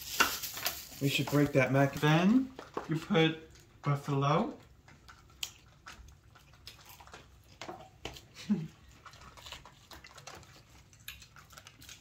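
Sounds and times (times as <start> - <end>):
plastic lid crinkling: 0.0 - 3.6.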